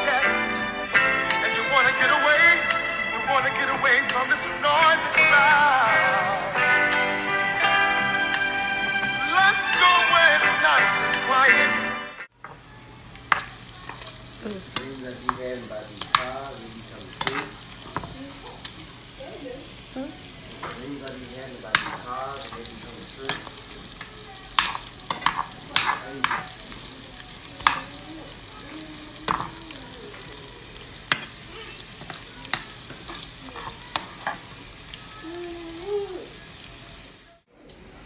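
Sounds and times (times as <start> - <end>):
food sizzling in a frying pan: 0.0 - 11.6, 12.3 - 37.5
utensil scraping a pan: 14.7 - 18.8, 21.6 - 26.9, 31.0 - 34.6.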